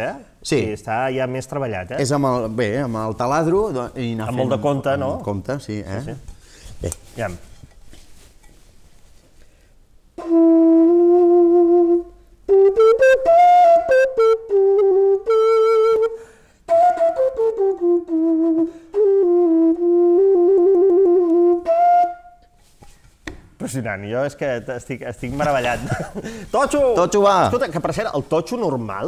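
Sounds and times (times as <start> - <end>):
breathy flute melody: 10.2 - 22.6.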